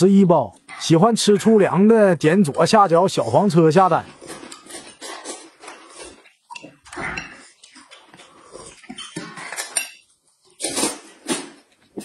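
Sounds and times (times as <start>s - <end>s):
person slurping noodles: 4.1s - 9.4s
chewing: 4.1s - 11.0s.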